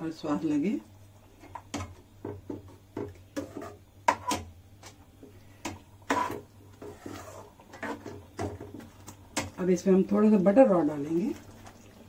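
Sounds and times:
steel spoon scraping metal pan: 3.4s - 4.4s, 6.1s - 8.1s.

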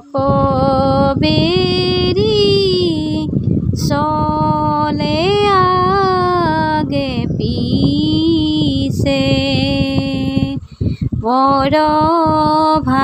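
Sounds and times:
woman singing: 0.0s - 13.0s
breaths: 10.6s - 11.2s.

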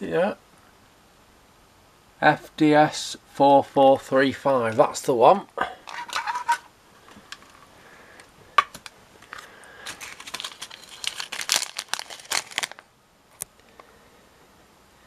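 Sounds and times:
plastic bag crinkling: 8.8s - 12.9s.

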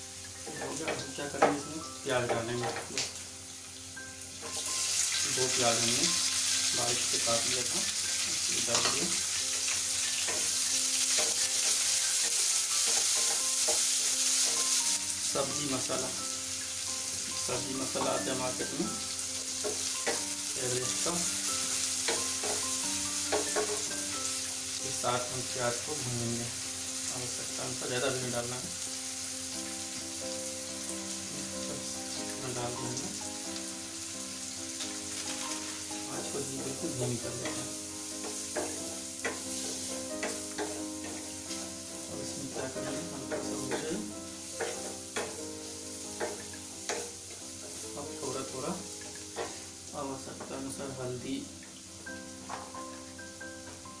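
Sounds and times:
onions sizzling in hot oil: 0.0s - 54.0s
soft music: 0.0s - 54.0s.

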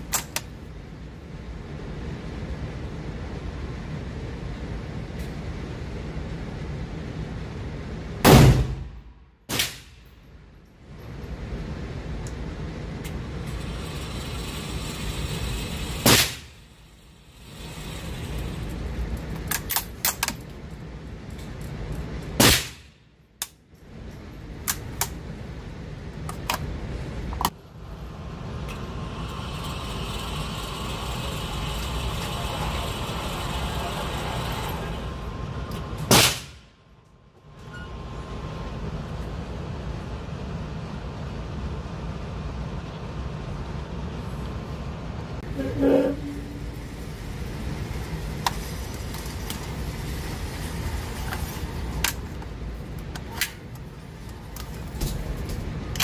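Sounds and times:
steady background noise: 0.0s - 56.0s
rifle shots indoors: 8.2s - 10.0s.

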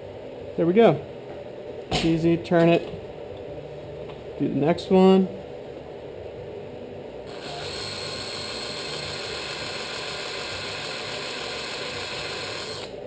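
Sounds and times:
cordless drill drilling into aluminum: 7.3s - 13.0s.

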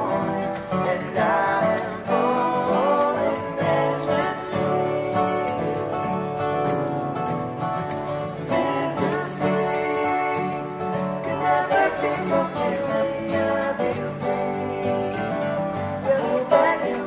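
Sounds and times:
acoustic guitars strumming chords: 0.0s - 17.0s.

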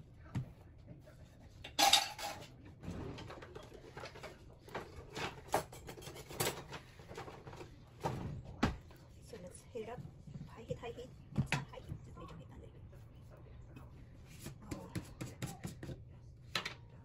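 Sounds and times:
cookware clattering: 1.7s - 2.6s, 3.2s - 7.6s.

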